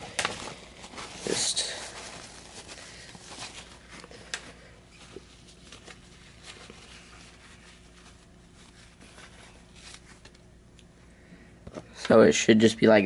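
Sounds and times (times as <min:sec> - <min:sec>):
paper towel rustling and scraping: 0:00.0 - 0:10.4.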